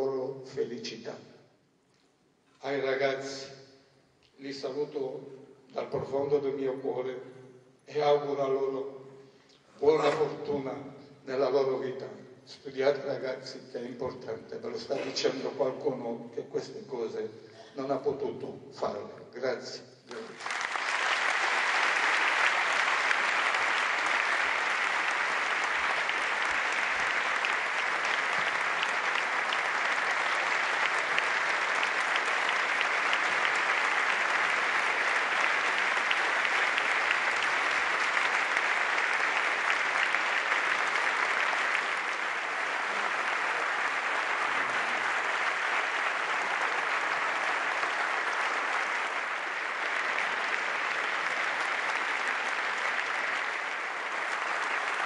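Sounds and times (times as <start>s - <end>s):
audience applause: 20.1s - 55.0s.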